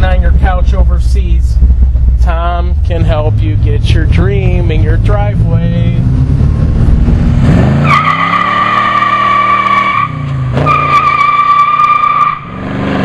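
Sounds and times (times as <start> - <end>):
car engine revving hard: 4.0 - 13.0
tires squealing: 7.4 - 13.0.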